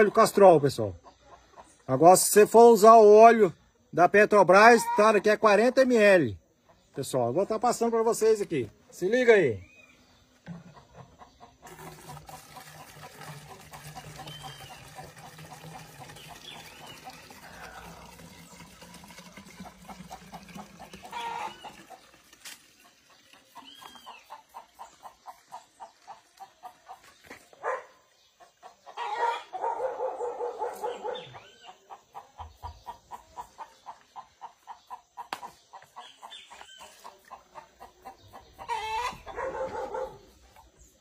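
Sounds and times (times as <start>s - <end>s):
chickens clucking: 0.0s - 2.8s, 4.5s - 9.1s, 10.1s - 18.4s, 19.5s - 41.0s
gasoline pouring into plastic bottle: 11.6s - 23.4s
high bird chirps: 23.6s - 24.4s.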